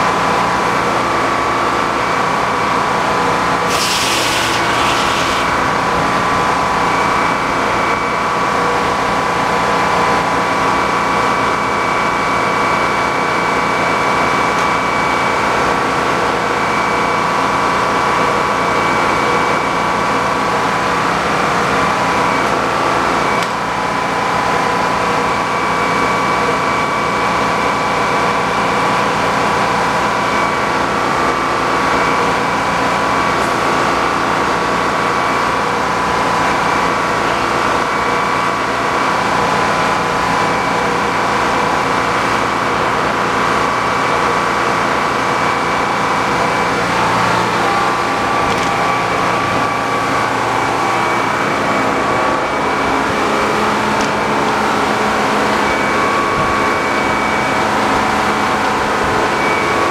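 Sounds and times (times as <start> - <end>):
sawmill engine running: 0.0 - 59.9
high whine: 3.5 - 9.0.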